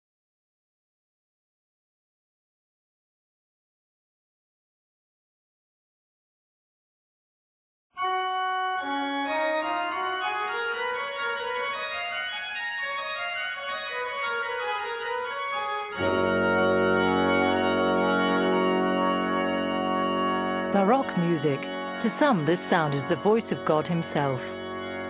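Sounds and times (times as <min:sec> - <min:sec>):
pipe organ playing: 0:08.0 - 0:25.0.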